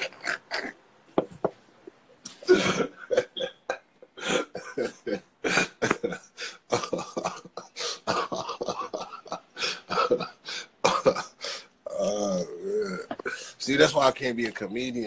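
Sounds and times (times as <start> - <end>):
man laughing hard: 2.4 - 11.3.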